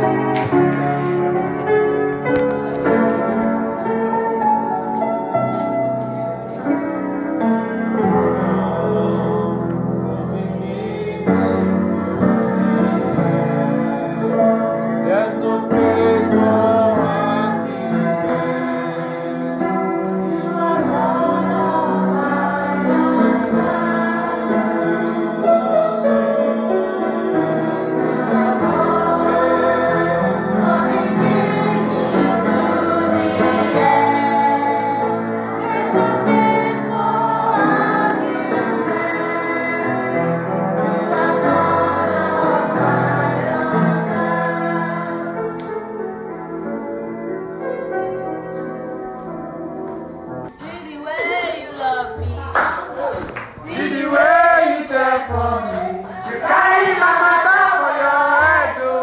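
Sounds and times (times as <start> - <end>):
choir singing gospel: 0.0 - 49.0, 50.5 - 59.0.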